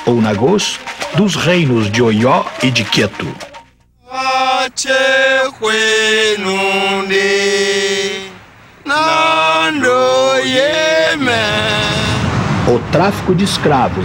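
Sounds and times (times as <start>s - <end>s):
person chanting: 4.0s - 12.9s.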